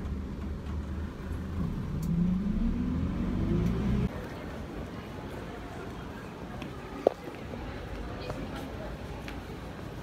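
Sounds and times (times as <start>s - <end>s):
bus engine hum with whine: 0.0s - 4.3s.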